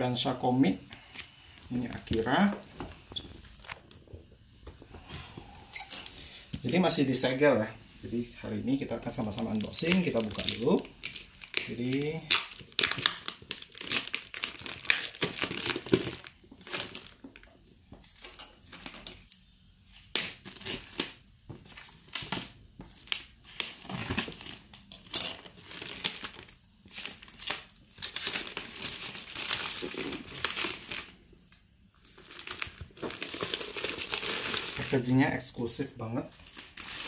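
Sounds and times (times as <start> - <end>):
plastic shrink-wrap crinkling and tearing: 9.0 - 17.6, 20.0 - 35.3, 36.4 - 37.0.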